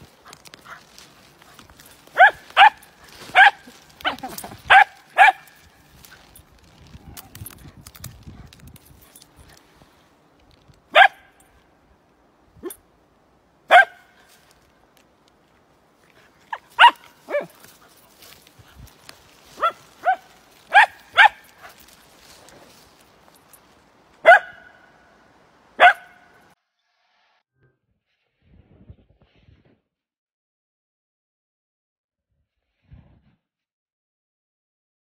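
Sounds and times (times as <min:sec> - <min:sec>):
dog barking: 0:02.1 - 0:05.6, 0:10.9 - 0:11.4, 0:13.7 - 0:14.2, 0:16.5 - 0:17.6, 0:19.6 - 0:21.8, 0:24.2 - 0:25.0, 0:25.8 - 0:26.4.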